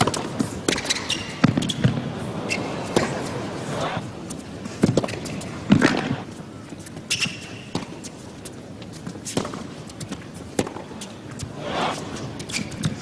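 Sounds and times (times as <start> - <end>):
shoe squeak: 0.7 - 1.9, 7.1 - 8.1, 11.7 - 13.0
tennis ball bouncing: 9.1 - 11.0
tennis ball striking racket: 9.3 - 10.9.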